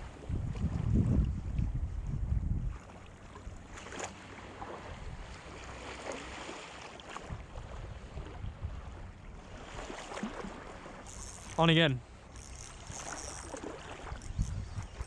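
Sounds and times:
wind buffeting microphone: 0.0s - 3.0s, 12.4s - 15.0s
small waves lapping: 2.6s - 15.0s.

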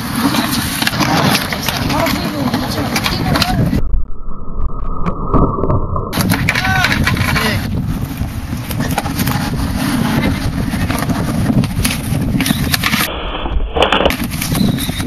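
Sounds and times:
skateboard clacks: 0.0s - 3.7s, 6.2s - 7.6s, 8.6s - 13.1s
skateboard wheels rolling on concrete: 0.0s - 3.8s, 6.1s - 15.0s
wind buffeting microphone: 1.5s - 15.0s.

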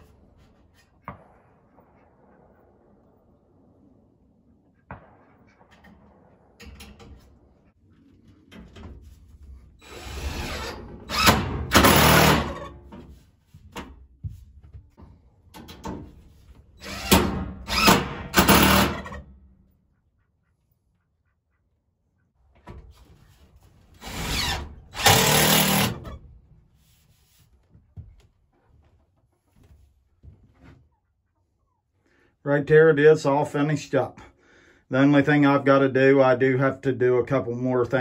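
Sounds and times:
drill driving screws into metal: 9.8s - 12.7s, 16.8s - 19.2s, 24.0s - 26.2s.

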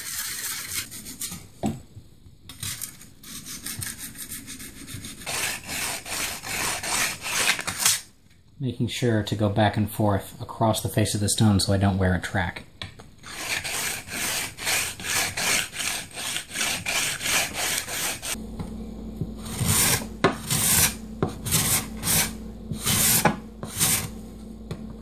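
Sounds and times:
scraper rasping on whetstone: 0.0s - 1.3s, 2.6s - 8.0s, 13.2s - 18.4s, 19.5s - 24.1s
scraper scraping wood: 0.0s - 1.4s, 2.6s - 8.0s, 13.2s - 18.4s, 19.4s - 24.2s
low electrical hum: 0.0s - 25.0s.

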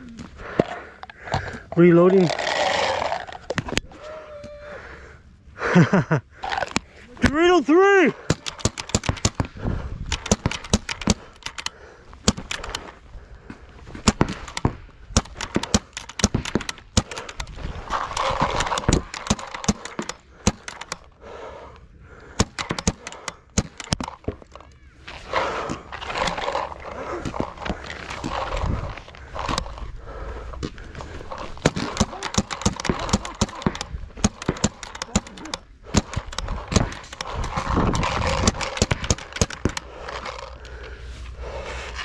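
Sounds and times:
paintball markers popping: 8.2s - 12.9s, 14.0s - 21.1s, 22.2s - 24.8s, 30.7s - 40.7s.

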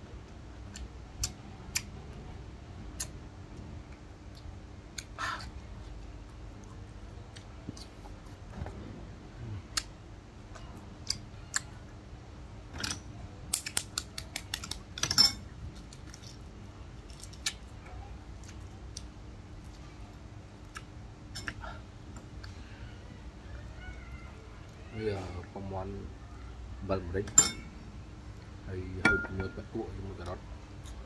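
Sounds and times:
eggshell cracking: 13.5s - 15.1s.

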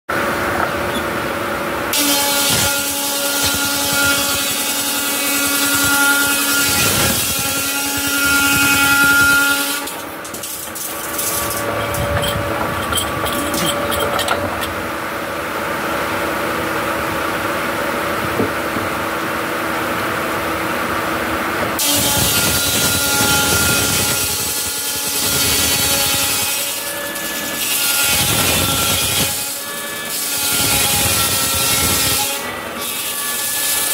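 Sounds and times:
saw blade whine: 0.2s - 20.6s
circular saw cutting timber: 1.9s - 14.9s, 21.8s - 33.9s
clatter: 10.2s - 14.8s.

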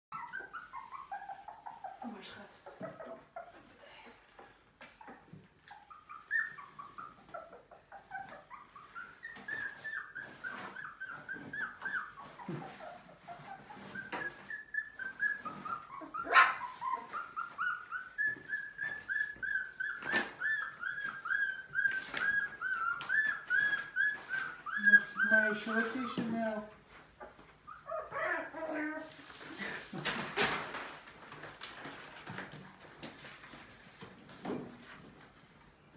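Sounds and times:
puppies whining and yelping: 0.1s - 29.8s
newspaper rustling: 29.3s - 33.9s.

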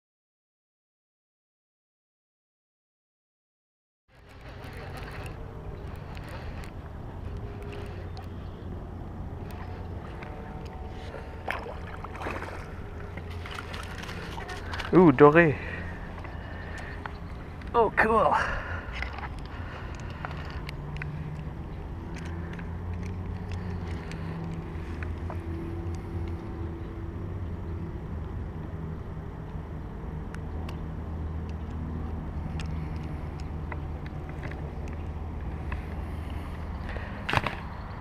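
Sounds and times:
low engine hum: 4.1s - 38.0s.

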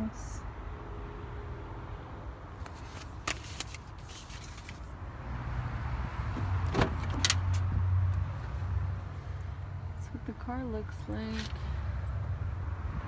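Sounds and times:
paper rustling: 2.6s - 5.0s.

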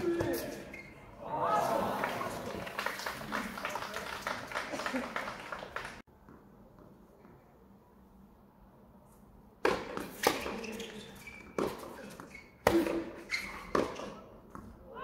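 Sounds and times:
tennis racket hitting ball: 9.6s - 10.8s, 11.5s - 14.7s.

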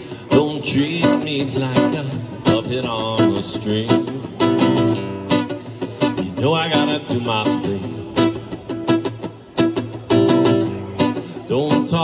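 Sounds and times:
plucked guitar strings: 0.0s - 12.0s.

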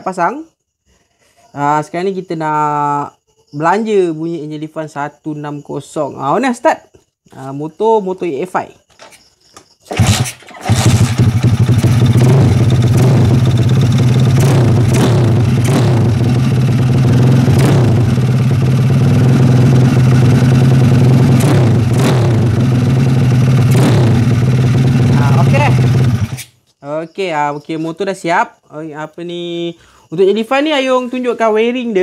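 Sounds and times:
motorcycle engine starting and idling: 9.9s - 26.5s.

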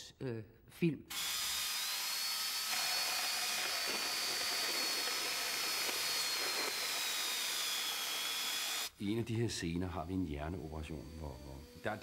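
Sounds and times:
surgical bone drill whining: 1.1s - 9.0s, 9.6s - 12.0s.

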